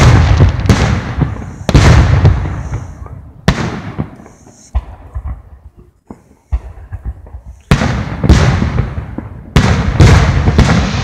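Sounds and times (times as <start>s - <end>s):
fireworks banging: 0.0s - 11.0s
fireworks crackling: 0.0s - 11.0s.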